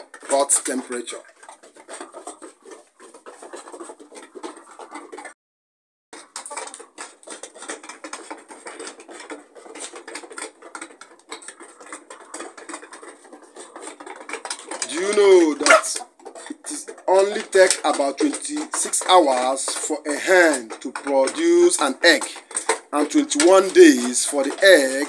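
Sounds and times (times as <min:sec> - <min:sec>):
scratching and pattering clicks: 0:00.0 - 0:05.4, 0:06.2 - 0:25.0.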